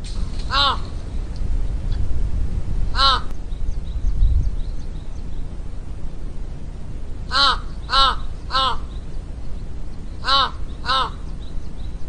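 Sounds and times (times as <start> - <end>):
low steady rumble: 0.0 - 12.0
crow cawing: 0.5 - 1.0, 2.9 - 3.3, 7.3 - 9.0, 10.2 - 11.3.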